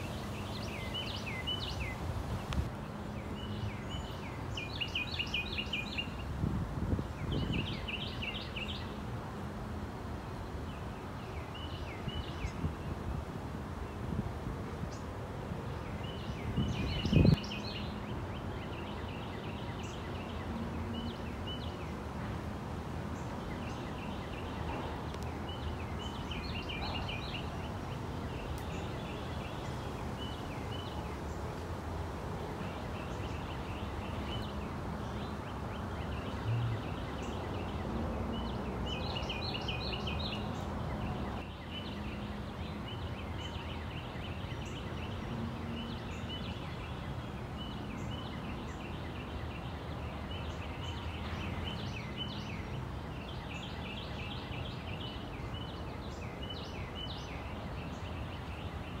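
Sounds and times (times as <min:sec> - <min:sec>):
small songbirds chirping: 0:00.0 - 0:09.1, 0:10.2 - 0:13.2, 0:14.8 - 0:59.0
low background noise: 0:00.0 - 0:59.0.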